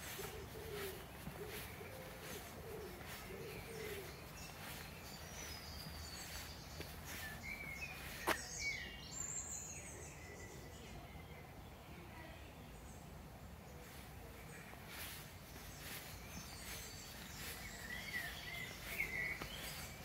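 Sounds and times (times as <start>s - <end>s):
birds chirping and whistling: 0.0s - 10.6s, 14.9s - 20.0s.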